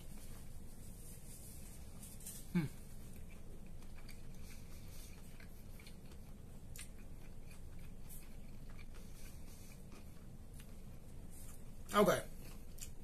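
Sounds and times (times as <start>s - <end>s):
man chewing food: 0.0s - 13.0s
short throat hum: 2.5s - 2.8s.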